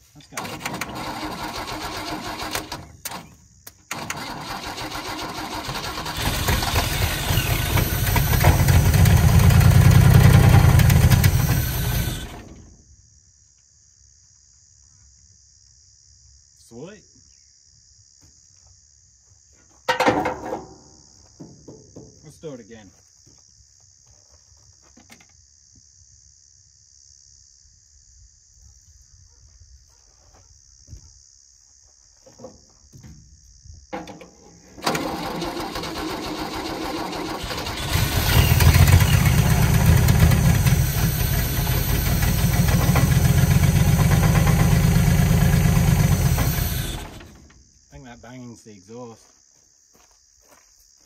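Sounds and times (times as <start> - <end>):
car engine cranking and running: 0.4 - 3.2, 3.9 - 12.6, 34.8 - 47.5
exhaust banging against metal: 37.9 - 47.5.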